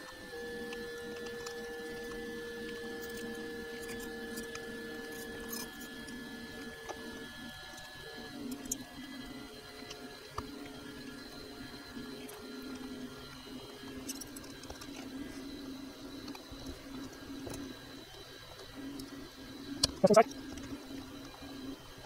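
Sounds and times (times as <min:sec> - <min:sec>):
steady hum: 0:18.9 - 0:21.8.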